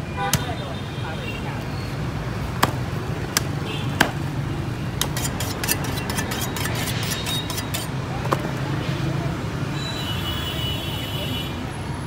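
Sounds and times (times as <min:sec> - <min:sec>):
street traffic rumble: 0:00.0 - 0:12.0
cleaver chopping fish: 0:02.6 - 0:04.2
blade clicking and scraping: 0:05.0 - 0:08.0.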